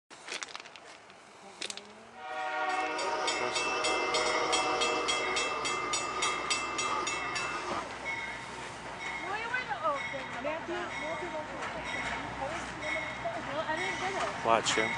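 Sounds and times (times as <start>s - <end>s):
locomotive horn chord: 2.2s - 7.8s.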